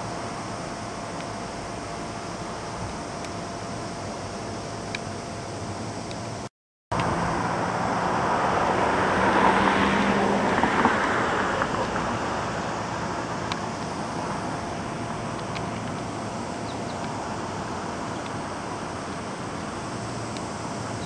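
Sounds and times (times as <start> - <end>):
steady low hum: 0.0 - 21.0
vehicle passing: 7.0 - 13.4.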